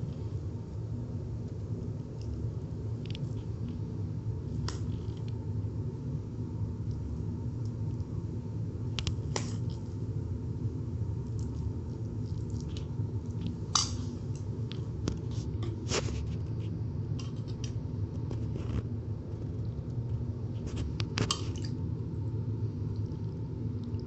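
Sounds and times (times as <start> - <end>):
steady low hum: 0.0 - 24.0
soft squish of rice: 11.1 - 17.6.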